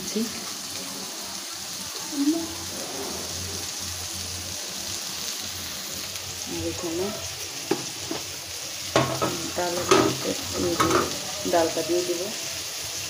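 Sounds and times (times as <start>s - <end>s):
fish sizzling in oil: 0.0s - 13.0s.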